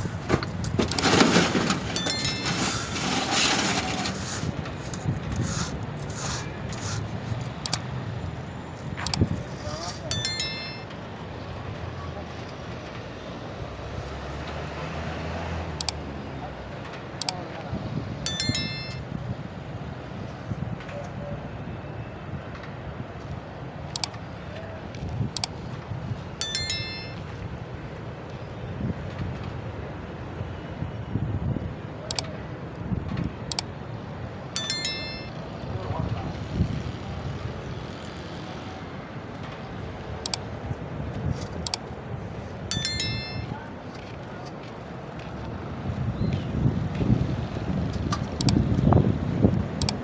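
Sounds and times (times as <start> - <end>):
outdoor background rumble: 0.0 - 21.6
sharp clicks: 7.6 - 7.9, 9.0 - 9.3, 15.8 - 16.0, 23.9 - 24.2, 32.1 - 32.3, 33.5 - 33.7, 48.0 - 48.6, 49.8 - 50.0.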